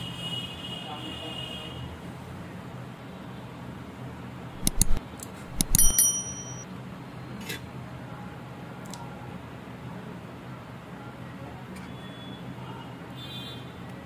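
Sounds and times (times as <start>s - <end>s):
tool clicks: 4.6s - 6.6s
ringing metal clink: 4.6s - 6.7s.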